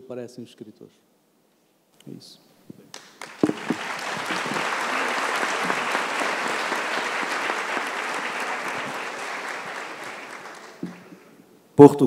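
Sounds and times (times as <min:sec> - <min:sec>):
audience applauding: 0:02.9 - 0:11.4.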